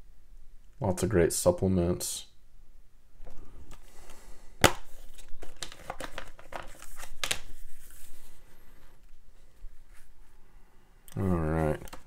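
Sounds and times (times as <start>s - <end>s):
plastic case crinkling: 3.2s - 8.1s
paper booklet rustling: 3.2s - 10.3s.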